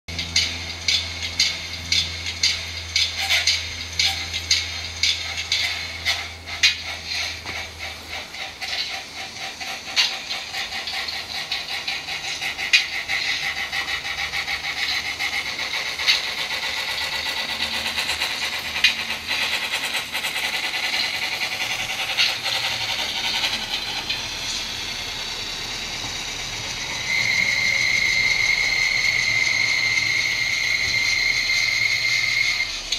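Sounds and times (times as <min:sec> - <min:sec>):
model train wheels clicking on rails: 0:00.1 - 0:32.9
small motor and gears whirring: 0:00.1 - 0:32.9
steady high whine: 0:00.1 - 0:32.9.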